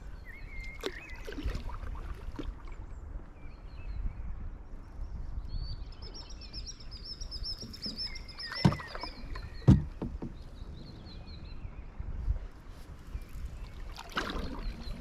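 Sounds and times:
songbird singing: 0:00.0 - 0:15.0
paddle knocking canoe: 0:07.4 - 0:11.0.

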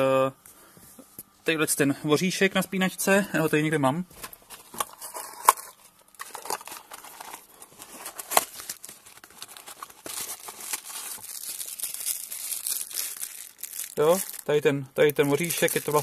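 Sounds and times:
plastic bag crinkling: 0:04.7 - 0:16.0.

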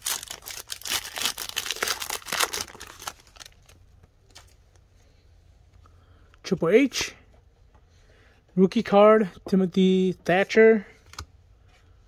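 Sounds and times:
wrapper crinkling and tearing: 0:00.0 - 0:04.5.

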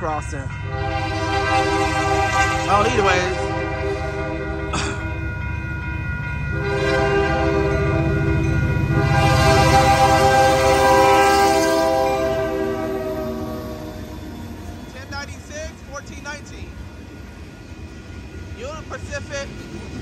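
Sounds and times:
diesel engines rumbling: 0:00.0 - 0:20.0
locomotive air horn blasts: 0:00.7 - 0:05.1, 0:06.5 - 0:14.6.

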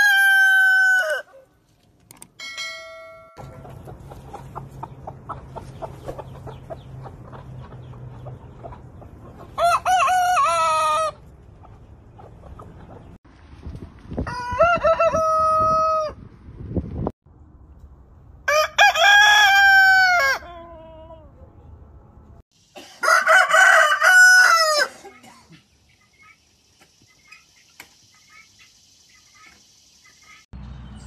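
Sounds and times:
roosters crowing: 0:00.0 - 0:01.4, 0:09.4 - 0:11.3, 0:14.2 - 0:16.2, 0:18.5 - 0:21.0, 0:23.0 - 0:25.1.

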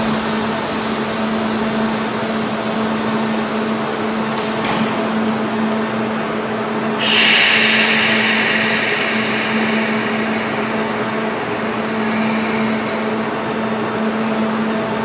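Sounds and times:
train low hum: 0:00.0 - 0:15.0
compressed air hiss: 0:07.0 - 0:12.3.

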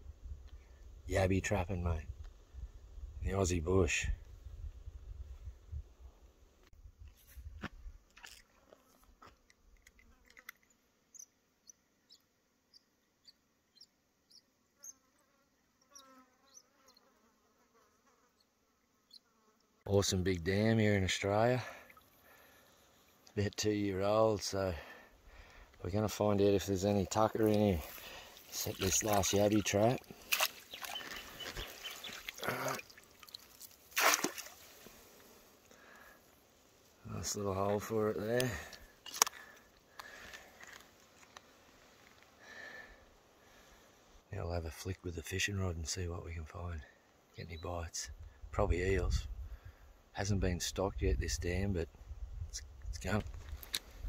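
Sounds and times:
water sloshing and trickling: 0:08.1 - 0:08.7, 0:27.2 - 0:35.1
insect buzzing: 0:10.0 - 0:19.8, 0:27.4 - 0:36.2
trap splashing into water: 0:30.0 - 0:31.1, 0:32.1 - 0:34.8.

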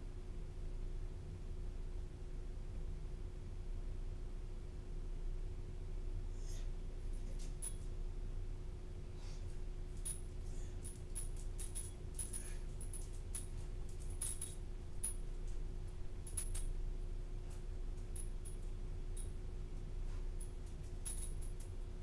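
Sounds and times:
low room hum: 0:00.0 - 0:22.0
dog collar tags jingling: 0:10.0 - 0:15.4, 0:16.2 - 0:16.8, 0:20.4 - 0:21.8.

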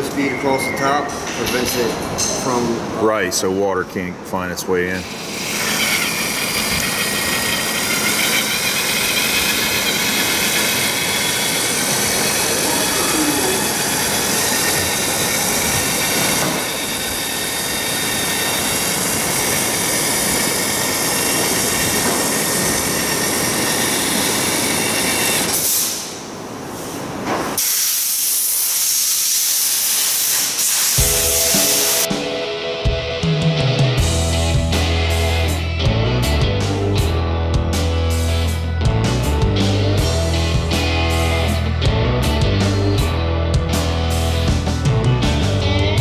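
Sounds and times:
pneumatic sealant gun hissing: 0:27.6 - 0:31.1.

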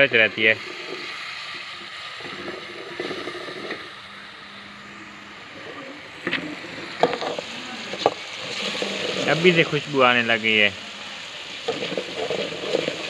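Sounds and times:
meat and tomatoes sizzling: 0:00.0 - 0:13.0.

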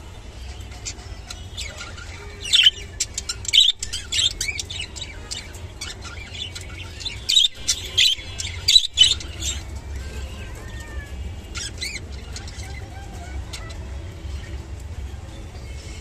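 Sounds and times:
budgerigar chirping: 0:00.8 - 0:09.7.

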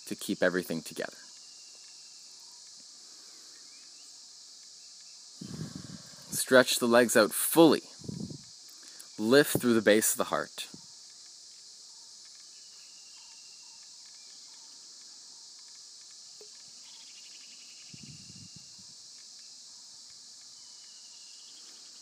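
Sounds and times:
insects droning: 0:00.0 - 0:22.0
bird chirps: 0:11.9 - 0:15.7, 0:16.3 - 0:22.0.

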